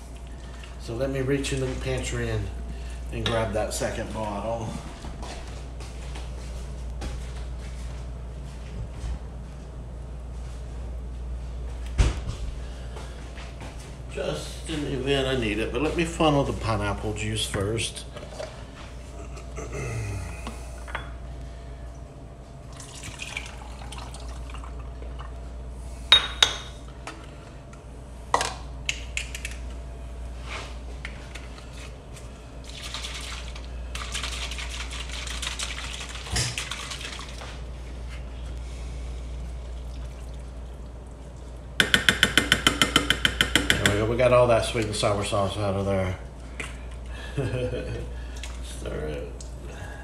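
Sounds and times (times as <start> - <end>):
juice pouring and splashing: 22.7 - 25.4, 32.6 - 37.6, 39.5 - 41.7.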